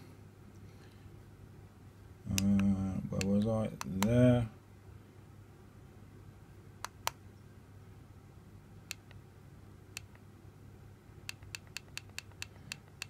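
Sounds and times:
push buttons clicking: 11.3s - 13.0s.

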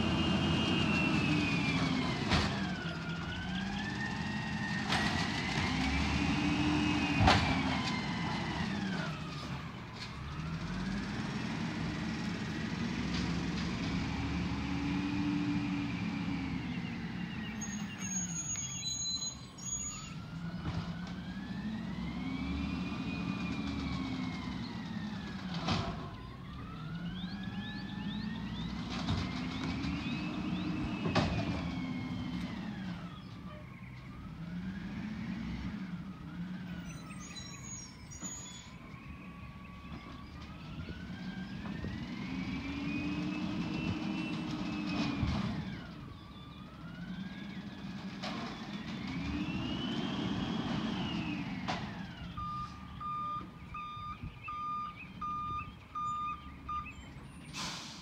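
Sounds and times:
siren wailing: 0.1s - 5.7s, 19.3s - 33.1s, 35.8s - 44.2s, 48.6s - 57.1s.

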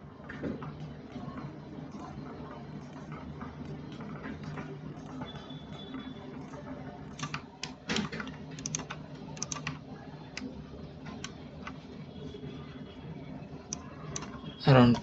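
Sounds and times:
computer mouse clicking: 6.5s - 10.5s, 11.1s - 11.8s, 13.7s - 15.0s.

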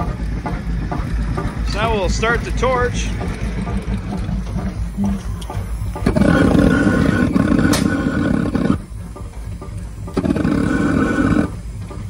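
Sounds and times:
gas torch hissing: 4.9s - 12.0s.

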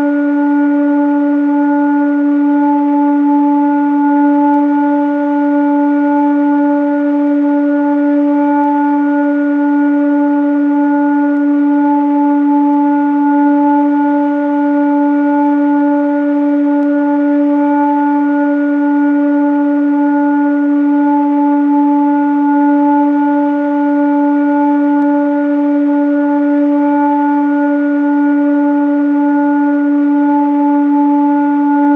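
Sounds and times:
sustained tone drone: 0.0s - 31.9s.

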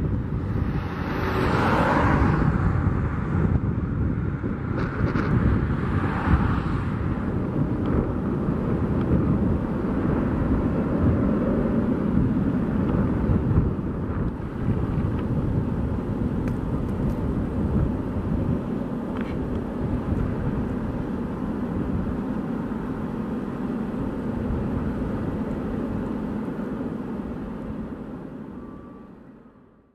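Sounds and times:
airport ramp rumble: 0.0s - 29.6s.

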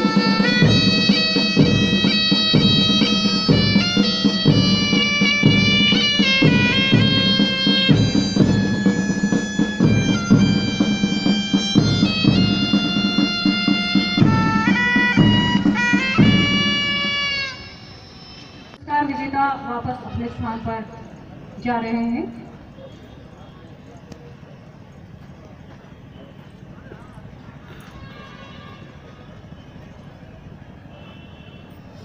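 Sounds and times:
drum beat: 0.0s - 17.8s
bagpipe melody with drone: 0.0s - 18.8s.

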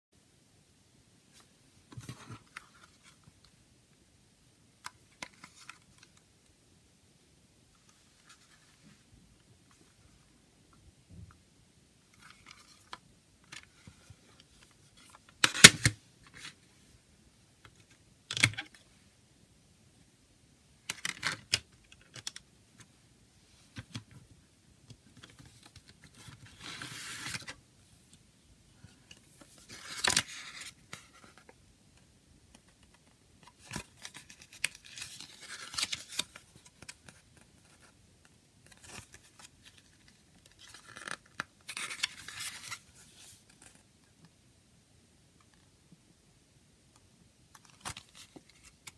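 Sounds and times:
paper booklet rustling: 29.1s - 31.6s, 32.8s - 38.0s, 38.6s - 43.9s.

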